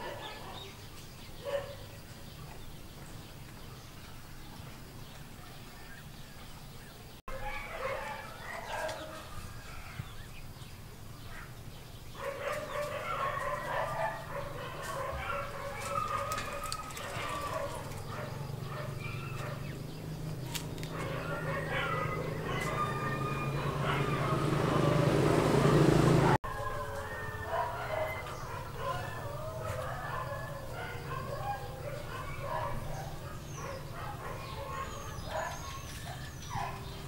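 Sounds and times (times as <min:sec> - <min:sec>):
rooster crowing: 0:21.2 - 0:25.5, 0:26.5 - 0:30.8.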